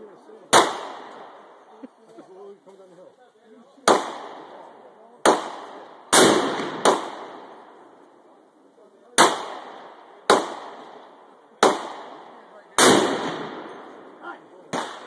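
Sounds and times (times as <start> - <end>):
rifle shots echoing: 0.5 - 1.7, 3.8 - 8.0, 9.1 - 15.0.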